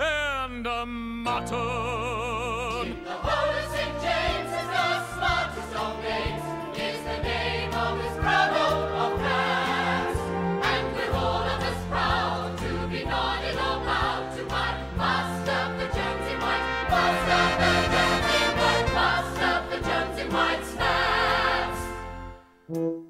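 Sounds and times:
orchestral show tune: 1.4s - 23.0s
chorus singing: 2.7s - 22.3s.

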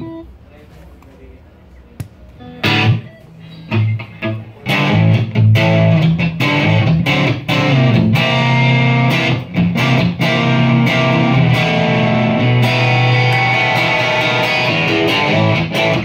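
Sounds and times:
distorted electric guitar chords: 2.4s - 16.0s.

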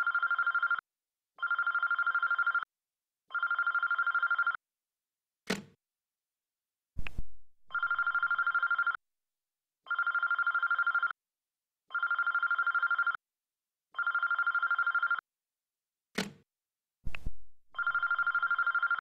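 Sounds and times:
telephone ringing with warbling trill: 0.0s - 0.8s, 1.4s - 2.7s, 3.3s - 4.6s, 7.7s - 9.0s, 9.9s - 11.2s, 11.9s - 13.2s, 14.0s - 15.2s, 17.8s - 19.0s.

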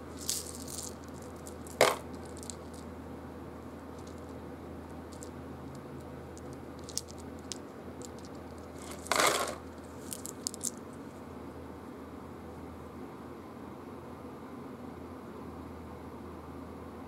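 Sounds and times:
game pieces clicking: 0.2s - 2.8s, 6.4s - 10.8s
game pieces rattling into tray: 0.2s - 2.8s, 6.4s - 10.8s.

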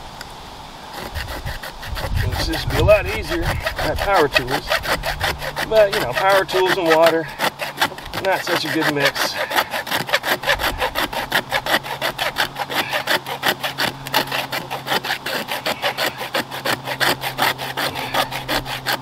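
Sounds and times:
hand saw cutting plastic pipe: 0.9s - 19.0s.

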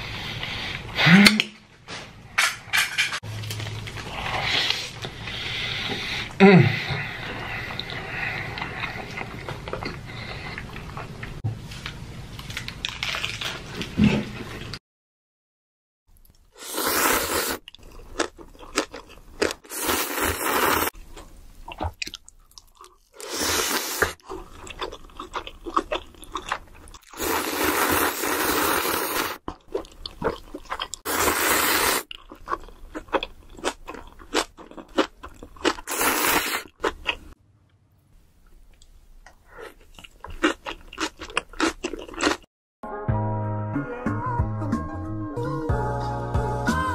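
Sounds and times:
person slurping noodles: 16.6s - 20.9s, 23.2s - 24.5s, 27.1s - 29.4s, 31.1s - 32.1s, 35.7s - 37.0s.

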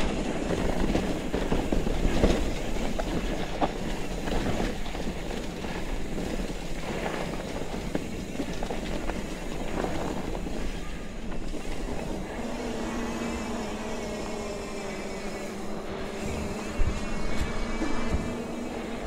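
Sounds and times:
bike rattling and clicking: 0.0s - 12.4s
bike tyres rumbling on dirt: 0.0s - 19.0s.

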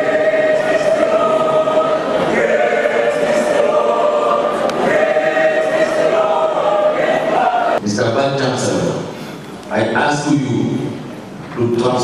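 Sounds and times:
choir singing held chords: 0.0s - 7.8s.

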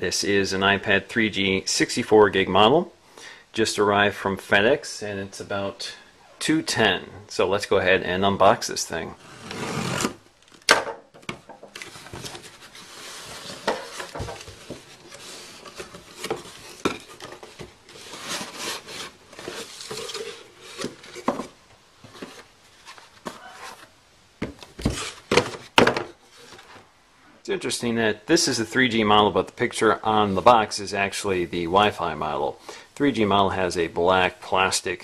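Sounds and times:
cardboard rubbing and scraping: 9.2s - 10.2s, 11.8s - 23.9s
knocks of packing moved: 10.0s - 26.9s.

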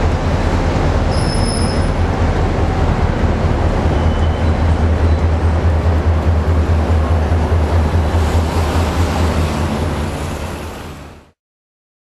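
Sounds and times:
diesel locomotive engine rumbling: 0.0s - 11.4s
thin high squeal: 1.1s - 1.9s.

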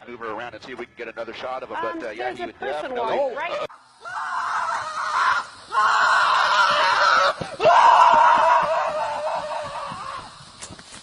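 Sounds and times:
shrill screaming voice: 3.7s - 10.4s.

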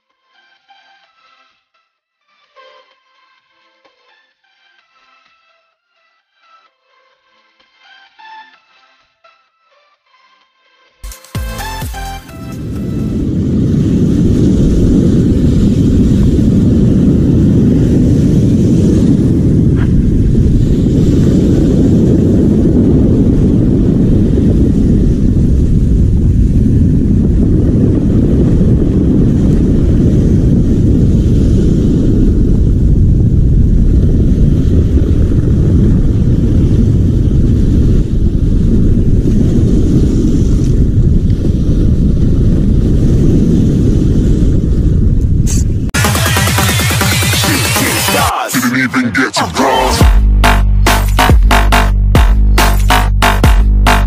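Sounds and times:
wind on microphone: 11.6s - 46.0s.

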